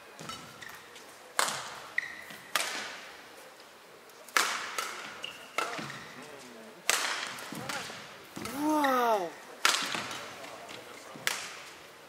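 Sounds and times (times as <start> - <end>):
rackets hitting shuttlecock: 1.4 - 3.0, 4.3 - 6.0, 6.9 - 9.0, 9.6 - 10.3
shoes squeaking on court: 1.9 - 2.5, 5.1 - 6.2.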